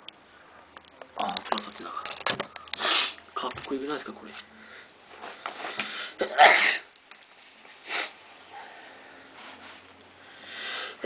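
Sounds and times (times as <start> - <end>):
person sniffing into tissue: 2.8 - 3.2, 7.7 - 10.0.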